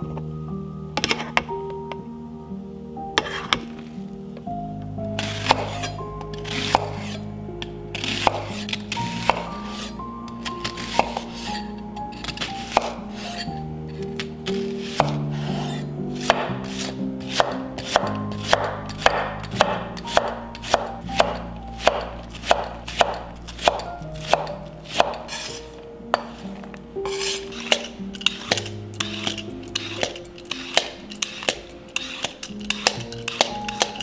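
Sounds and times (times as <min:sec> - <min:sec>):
background music: 0:00.0 - 0:34.0
knife chopping on wooden board: 0:05.2 - 0:07.2, 0:08.0 - 0:09.9, 0:12.6 - 0:13.0, 0:15.0 - 0:25.6.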